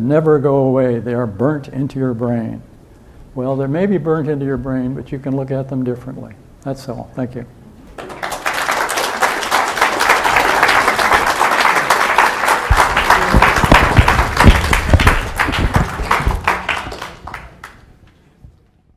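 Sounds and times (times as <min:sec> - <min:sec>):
audience applauding: 0:08.0 - 0:18.1
low thumps: 0:12.7 - 0:17.3.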